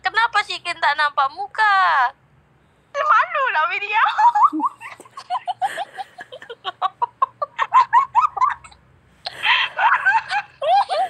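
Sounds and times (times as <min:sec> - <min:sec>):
woman giggling: 0:04.2 - 0:11.0.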